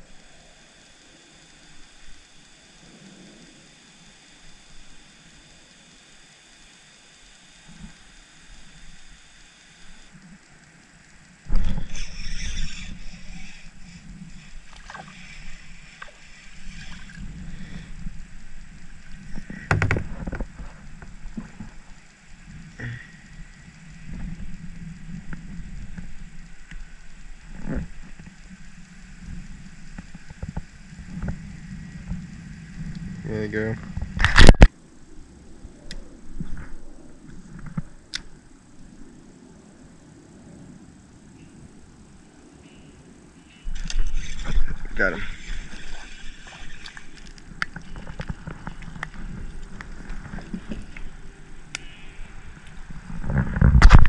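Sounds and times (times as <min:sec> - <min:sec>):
fishing reel clicks and taps: 0:07.7 - 0:31.3
steady low rumble: 0:07.7 - 0:54.0.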